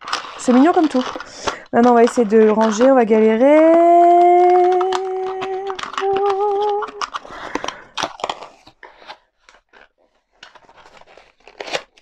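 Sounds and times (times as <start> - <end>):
clicks and rustling of packaging: 0.0 - 12.0
woman humming a tune: 3.5 - 7.1.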